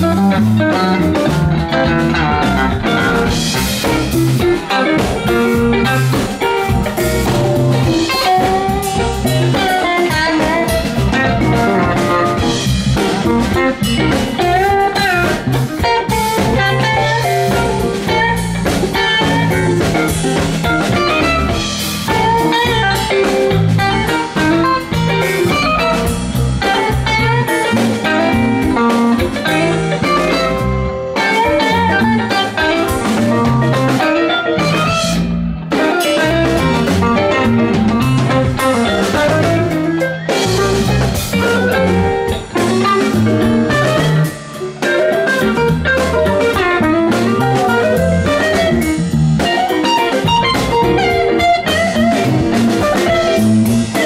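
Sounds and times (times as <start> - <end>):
bass guitar: 0.0 - 54.0
drum kit: 0.0 - 54.0
electric guitar: 0.0 - 54.0
keyboard: 0.0 - 54.0.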